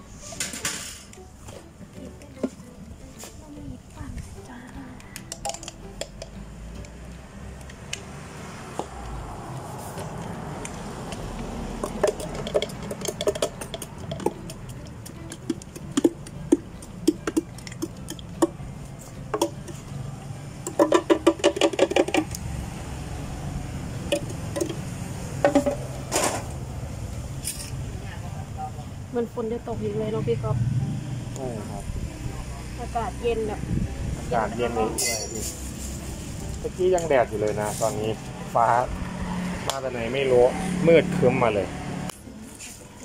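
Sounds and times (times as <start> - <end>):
cups and utensils clinking: 5.2 - 6.4, 11.8 - 19.9, 20.6 - 22.4, 24.1 - 26.6, 34.8 - 35.7.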